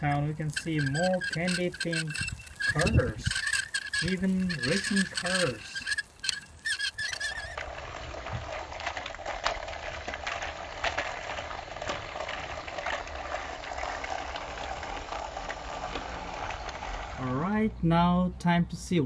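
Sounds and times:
small clicks: 0:00.0 - 0:07.6
toy train whirring and rattling: 0:00.0 - 0:07.7, 0:08.3 - 0:17.2.

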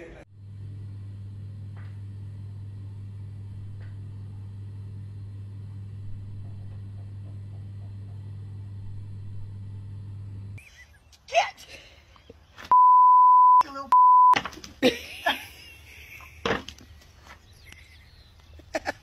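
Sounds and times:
steady low hum: 0:00.0 - 0:10.9.

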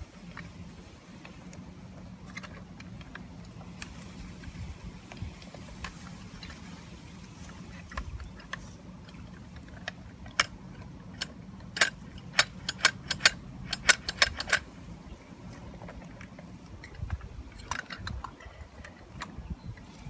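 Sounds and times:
toy truck parts clicking: 0:07.8 - 0:14.7, 0:15.8 - 0:19.9.

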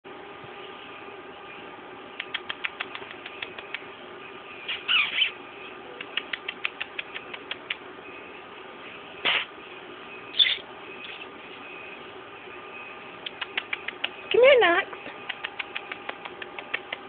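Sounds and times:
lip kissing clicks: 0:02.2 - 0:03.9, 0:06.0 - 0:07.9, 0:09.2 - 0:09.5, 0:13.2 - 0:14.4, 0:15.1 - 0:17.0.

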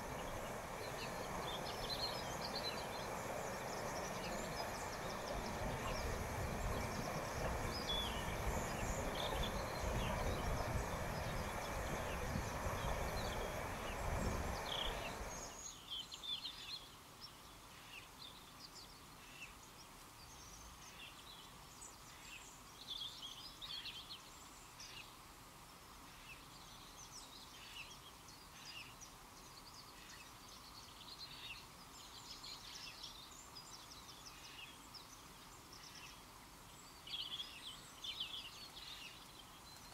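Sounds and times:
water roaring over weir: 0:00.0 - 0:15.6
birds chirping: 0:00.0 - 0:15.7.

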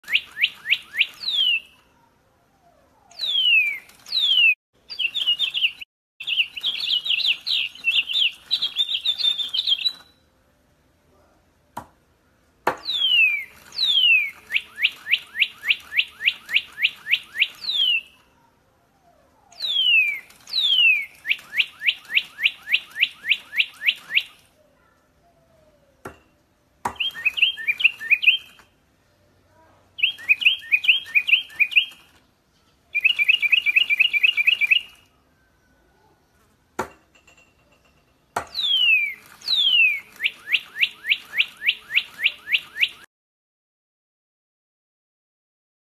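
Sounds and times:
electronic toy bird chirps: 0:00.0 - 0:01.8, 0:02.9 - 0:10.3, 0:12.8 - 0:18.3, 0:19.5 - 0:24.6, 0:26.9 - 0:28.7, 0:30.0 - 0:32.1, 0:33.0 - 0:35.1, 0:38.5 - 0:43.1.

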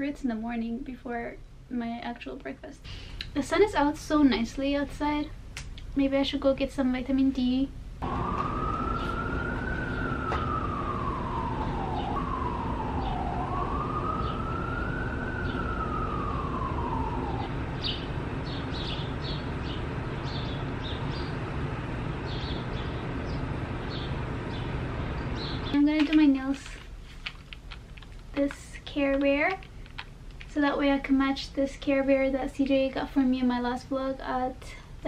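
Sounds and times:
low city rumble: 0:00.0 - 0:35.0
emergency vehicle siren wailing: 0:08.0 - 0:26.8.

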